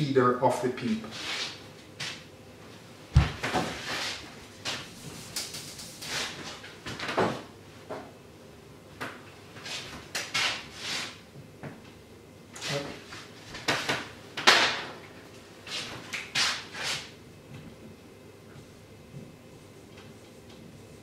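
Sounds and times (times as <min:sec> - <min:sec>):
wiping whiteboard scrubbing: 0:01.1 - 0:01.6, 0:03.6 - 0:06.6, 0:09.6 - 0:11.2, 0:15.6 - 0:17.1.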